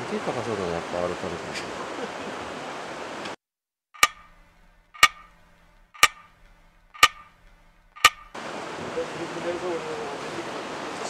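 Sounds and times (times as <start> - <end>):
clock ticking: 4.0 - 8.4
outdoor background sound: 4.0 - 8.8.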